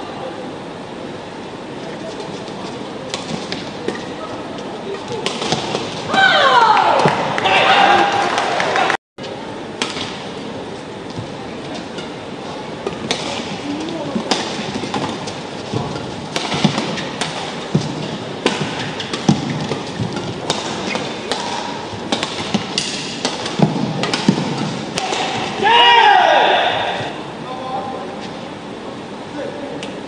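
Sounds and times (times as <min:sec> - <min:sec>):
background noise: 0:00.0 - 0:30.0
rackets hitting shuttlecock: 0:03.0 - 0:04.2, 0:05.1 - 0:07.4, 0:09.8 - 0:10.4, 0:12.8 - 0:27.2.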